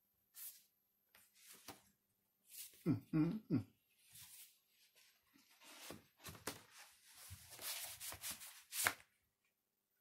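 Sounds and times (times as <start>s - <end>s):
paper and cardboard rustling: 4.0s - 9.1s.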